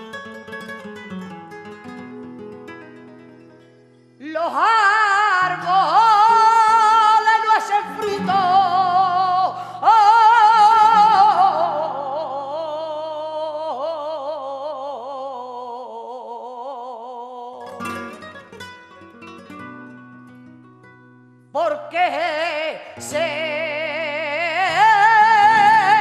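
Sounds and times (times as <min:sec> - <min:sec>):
flamenco guitar: 0:00.0 - 0:16.1, 0:17.5 - 0:26.0
woman singing with vibrato: 0:04.2 - 0:18.3, 0:21.5 - 0:26.0.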